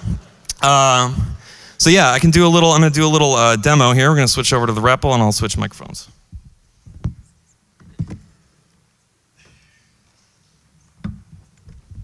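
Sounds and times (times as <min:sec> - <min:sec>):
microphone handling thumps: 0:06.2 - 0:08.3.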